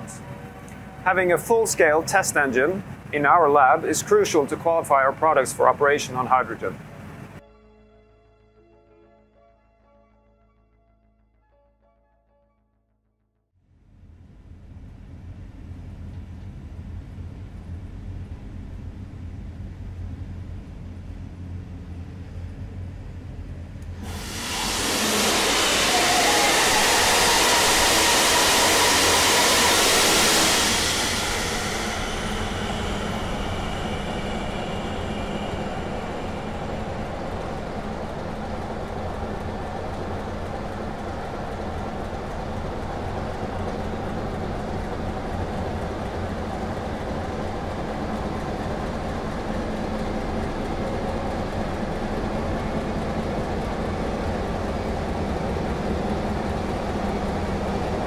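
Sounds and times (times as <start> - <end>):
gas engine running: 14.1 - 58.0
loud hissing rush: 24.0 - 49.6.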